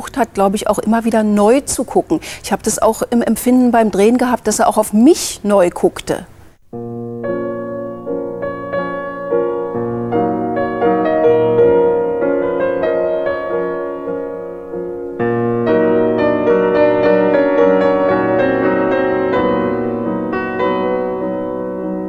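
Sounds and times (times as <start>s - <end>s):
piano playing slow chords: 6.7s - 22.0s.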